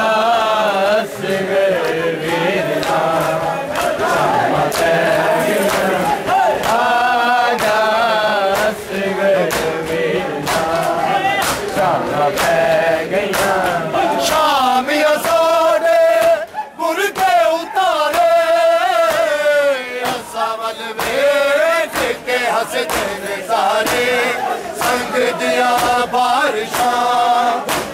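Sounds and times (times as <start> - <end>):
men chanting in unison: 0.0 - 27.9
hands slapping bare chests: 2.7 - 8.8, 9.4 - 14.4, 20.0 - 20.4, 21.0 - 21.3, 21.9 - 25.1, 25.7 - 26.1, 26.7 - 27.9.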